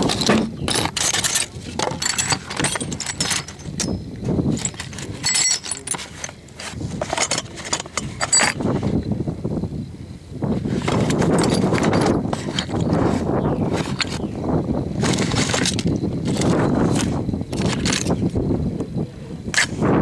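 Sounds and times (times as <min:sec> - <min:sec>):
steel tools clinking in a box: 0:00.0 - 0:08.6, 0:10.8 - 0:13.0, 0:15.0 - 0:18.2.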